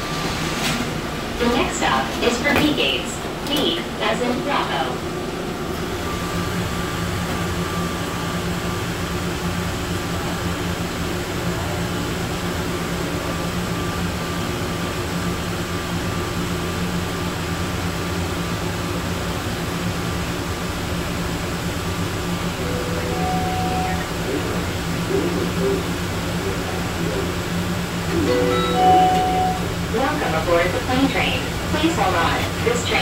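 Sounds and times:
train hum and rumble: 0.0 - 33.0
high whine: 22.5 - 30.3.

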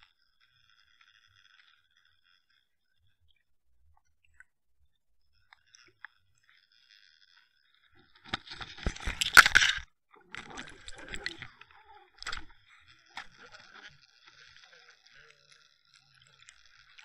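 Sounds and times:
faint crackling: 5.4 - 17.0
knocks and scraping underwater: 8.0 - 14.4.

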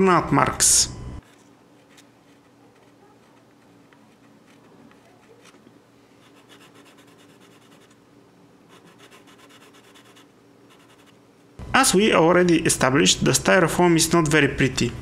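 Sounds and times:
pencil scribbling on plastic: 1.2 - 5.6, 6.2 - 8.0, 8.7 - 11.2.

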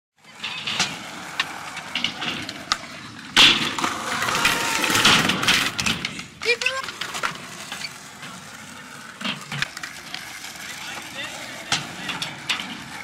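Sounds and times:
skateboard wheels rolling on concrete: 0.2 - 13.0
skateboard clacking on ramp: 0.3 - 13.0.

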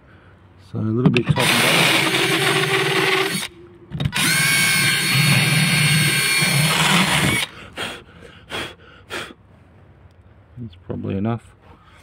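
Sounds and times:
power drill grinding wood: 1.3 - 3.5, 4.1 - 7.5.

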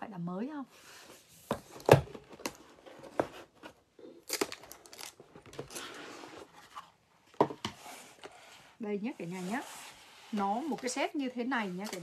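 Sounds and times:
packaging rustling and crinkling: 1.5 - 7.0.

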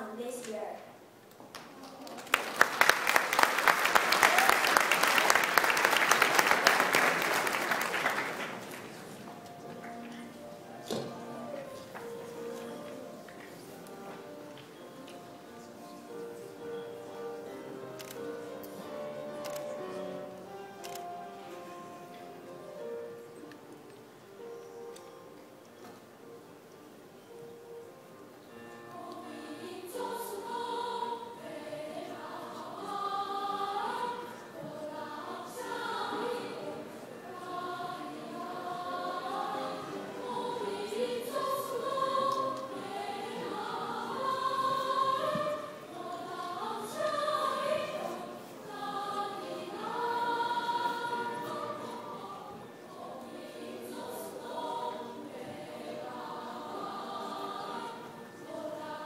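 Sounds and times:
young voices choir singing: 28.4 - 59.0.

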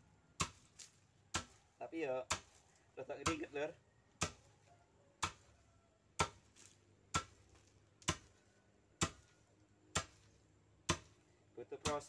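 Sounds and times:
wooden pestle pounding in mortar: 1.3 - 1.6, 2.2 - 2.6, 4.2 - 4.5, 5.2 - 5.5, 6.1 - 8.4, 9.0 - 9.3, 9.9 - 11.2.

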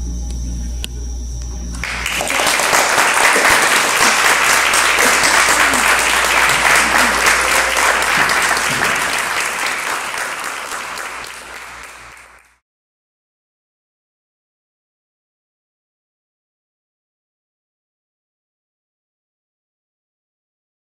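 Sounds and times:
audience applauding: 1.8 - 12.6.

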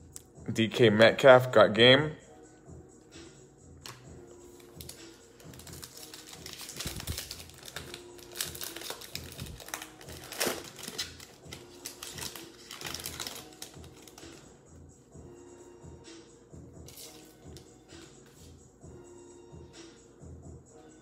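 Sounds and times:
background music with steady beat: 0.0 - 21.0
cards rustling: 3.8 - 14.4
foil wrapper crinkling and tearing: 4.7 - 14.4.

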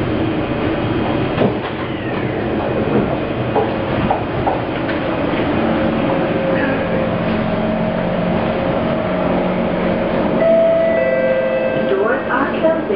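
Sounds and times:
train equipment hum and whine: 0.0 - 12.9
high steady tone with overtones: 10.4 - 12.8.

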